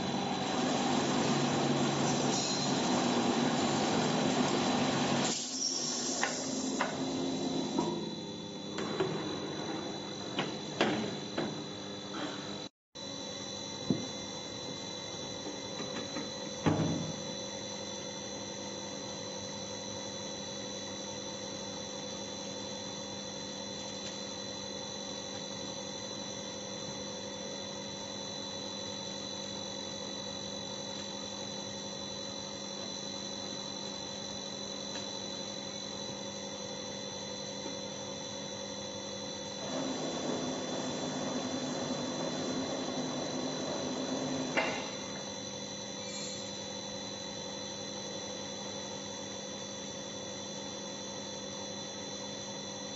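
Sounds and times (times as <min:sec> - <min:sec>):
loud machine noise: 0:00.0 - 0:11.0, 0:39.5 - 0:45.2
stamping press humming: 0:00.0 - 0:12.3, 0:39.4 - 0:45.4.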